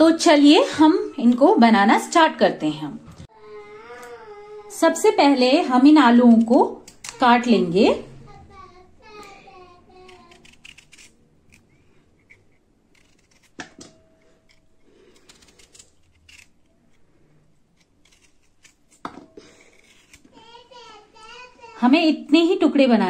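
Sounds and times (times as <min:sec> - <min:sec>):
knife slicing potatoes: 0:09.2 - 0:20.4.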